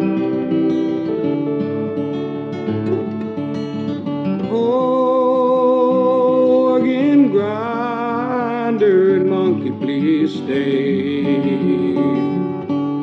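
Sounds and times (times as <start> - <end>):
acoustic guitar strumming: 0.0 - 13.0
person singing with vibrato: 4.4 - 12.6.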